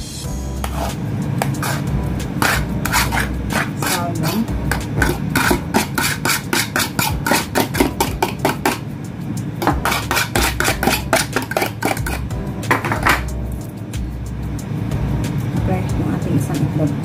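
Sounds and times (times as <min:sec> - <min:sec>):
utensil scraping plastic container: 0:00.6 - 0:08.8, 0:09.6 - 0:13.2.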